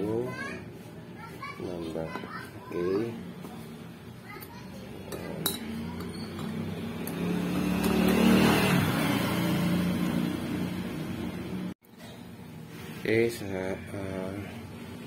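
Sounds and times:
passing vehicle engine: 5.6s - 11.8s.

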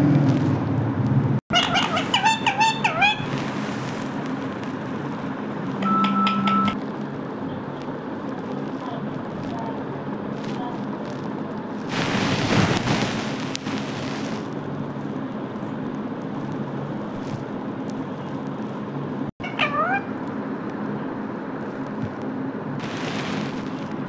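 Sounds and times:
parakeet squawking: 1.5s - 3.9s, 19.4s - 20.2s
loud rush of hiss: 11.9s - 14.6s, 22.8s - 24.0s.

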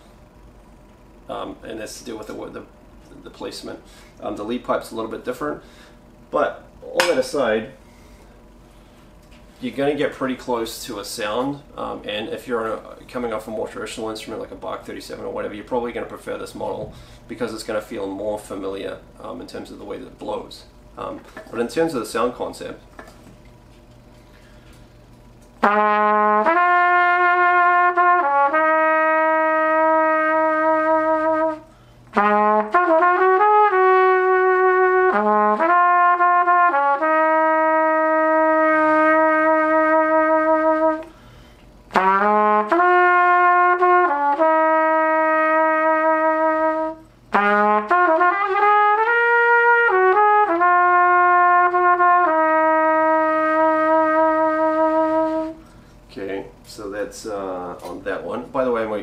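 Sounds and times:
trumpet playing long notes: 25.6s - 41.1s, 41.9s - 55.6s.

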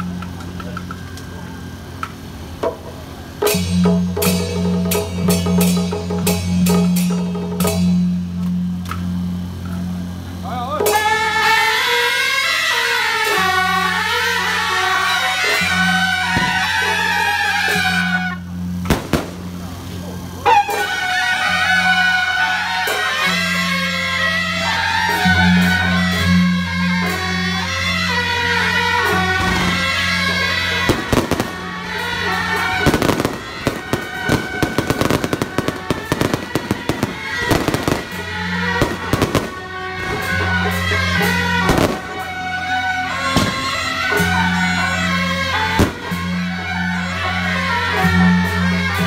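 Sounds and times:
band music: 0.0s - 49.0s
fireworks bangs and crackles: 12.7s - 23.6s, 28.2s - 44.6s, 45.3s - 46.7s.

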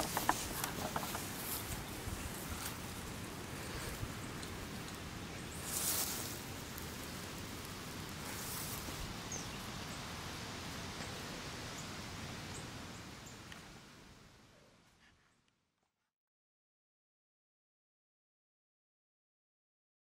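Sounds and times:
rustling in grass: 0.0s - 11.6s
outdoor background noise: 0.0s - 16.1s.

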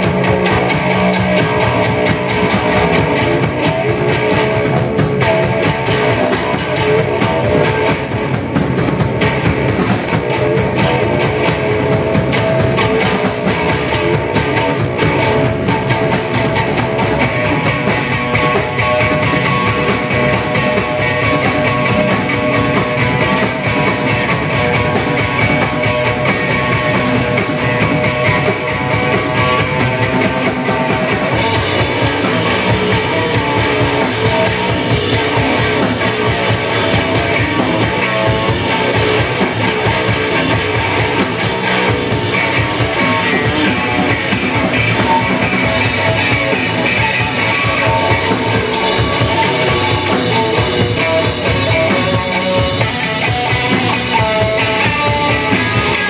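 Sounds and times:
bass guitar: 0.0s - 56.0s
distorted electric guitar: 0.0s - 56.0s
drum kit: 0.0s - 56.0s.

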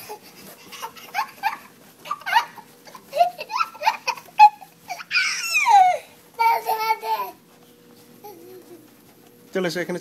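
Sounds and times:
toddler giggling and squealing: 0.0s - 7.4s.

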